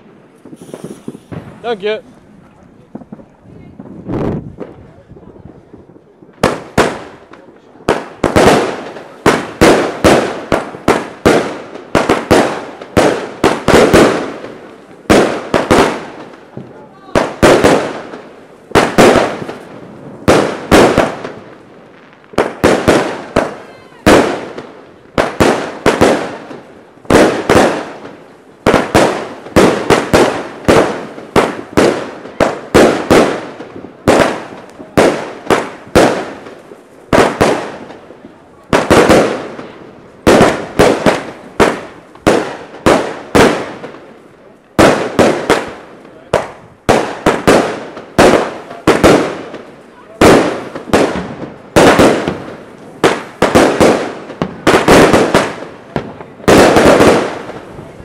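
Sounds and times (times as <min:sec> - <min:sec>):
firework bangs with crackling pops: 0:00.0 - 0:58.0.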